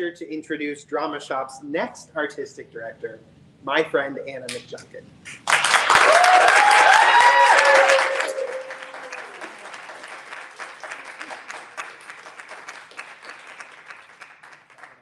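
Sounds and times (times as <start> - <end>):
audience applauding: 5.4 - 15.0
audience cheering: 5.7 - 13.9.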